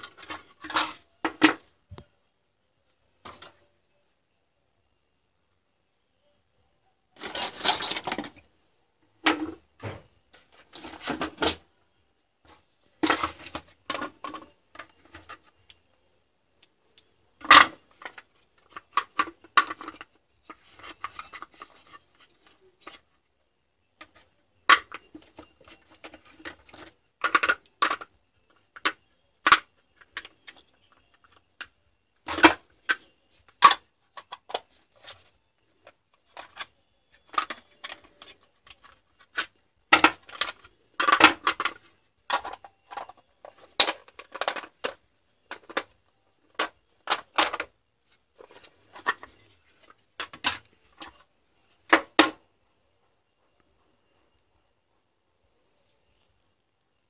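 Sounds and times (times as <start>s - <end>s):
plastic battery case clicks and rattles: 24.0s - 35.2s, 36.2s - 47.7s.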